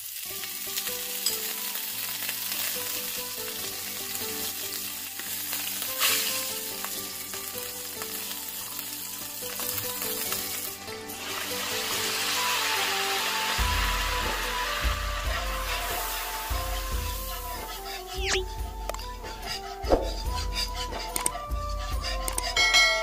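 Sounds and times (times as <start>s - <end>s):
butter sizzling in a frying pan: 0.0s - 18.2s
spatula scraping a pan: 3.7s - 9.0s, 9.6s - 22.8s.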